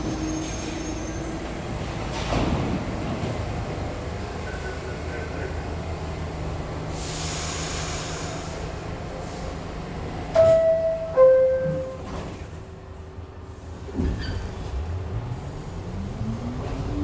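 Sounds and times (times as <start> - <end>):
train hum: 0.0 - 17.0
two-tone door chime: 10.4 - 12.0.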